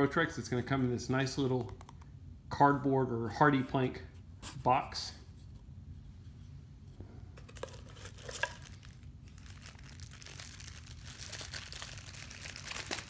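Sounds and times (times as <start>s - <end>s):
cardboard packaging handled: 7.4s - 13.0s
plastic bag crinkling: 7.4s - 13.0s.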